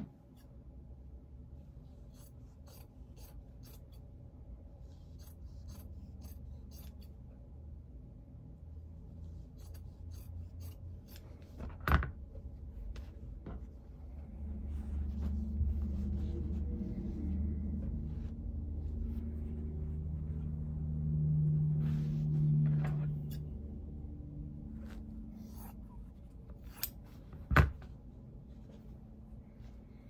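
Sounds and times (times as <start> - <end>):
low steady hum: 0.0 - 30.0
fabric rustling: 10.9 - 23.4.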